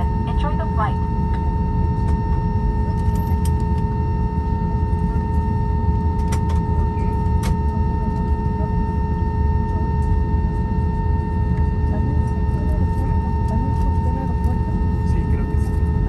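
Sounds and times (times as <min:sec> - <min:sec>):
jet engines idling: 0:00.0 - 0:10.4.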